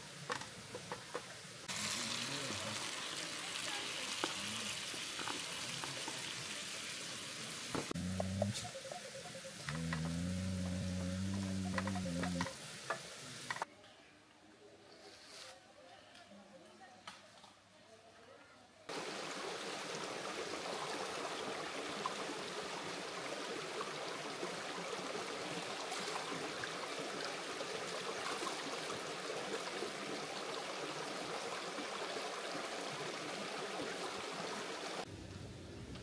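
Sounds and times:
stream rushing over rocks: 18.9s - 35.1s.

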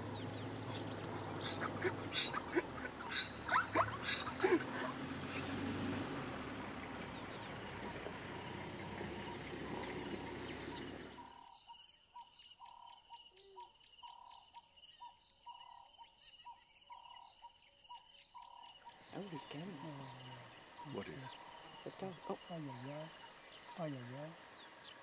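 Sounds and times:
bird chirps: 0.0s - 5.7s, 6.5s - 25.0s
wild dogs squeaky calls: 0.0s - 5.8s
high insect trill: 1.4s - 25.0s.

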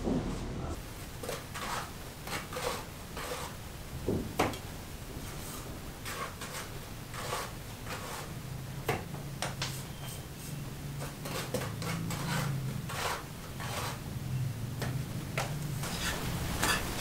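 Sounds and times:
scraping and knocking of building work: 0.0s - 14.0s, 14.8s - 17.0s.

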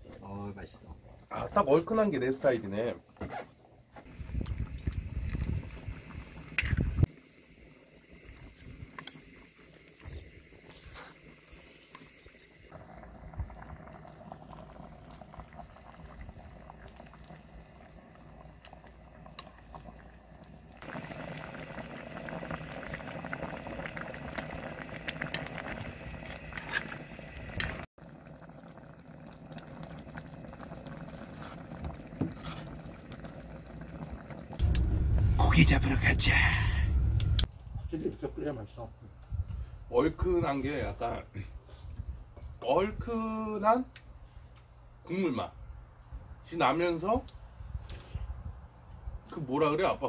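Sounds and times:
fish stew boiling and bubbling: 0.0s - 36.8s.

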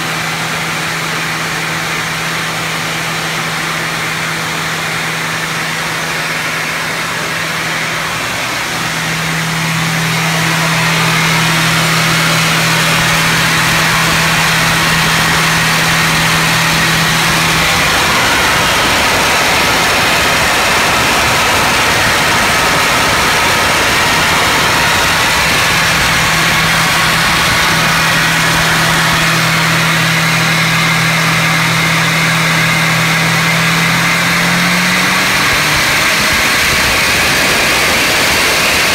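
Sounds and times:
engine humming with rushing hiss: 0.0s - 38.9s.

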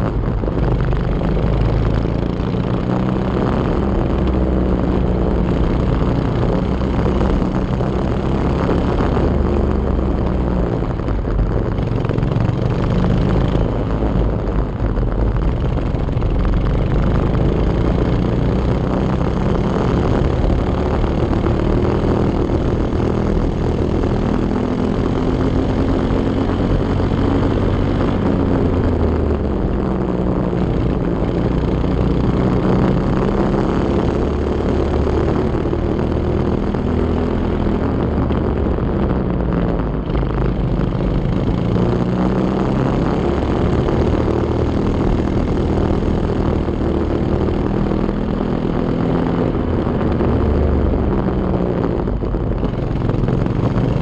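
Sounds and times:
rush of noise: 0.0s - 54.0s.

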